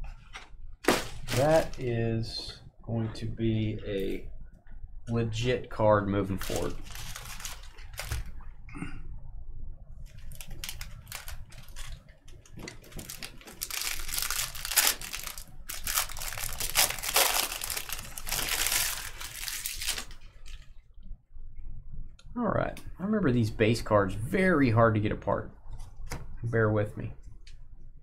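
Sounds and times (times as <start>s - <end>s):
foil wrappers crinkling: 0.9s - 1.8s, 6.3s - 8.4s, 10.1s - 20.7s.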